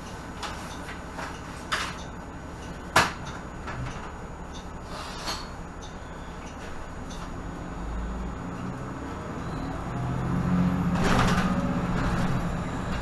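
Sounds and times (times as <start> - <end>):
bus engine idling hum: 0.0 - 13.0
clacks and rattles: 10.9 - 13.0.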